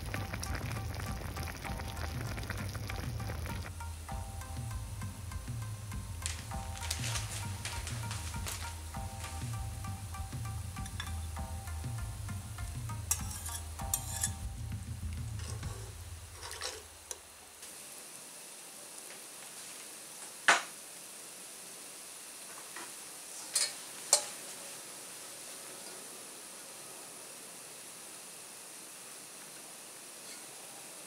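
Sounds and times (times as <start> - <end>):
soup boiling and bubbling: 0.0 - 31.0
metal tongs clinking on bowl: 13.1 - 14.4, 23.5 - 24.4
low rumble: 14.3 - 17.0.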